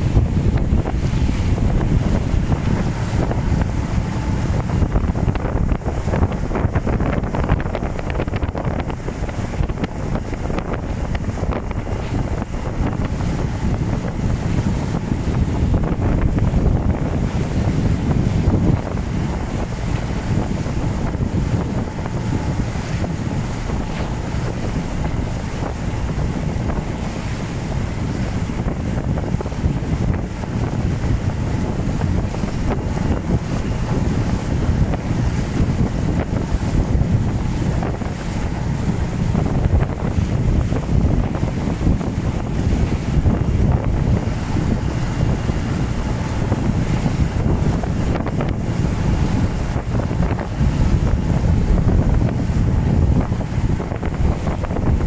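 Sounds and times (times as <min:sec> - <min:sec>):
rushing splashing water: 0:00.0 - 0:55.0
wind buffeting microphone: 0:00.0 - 0:55.0.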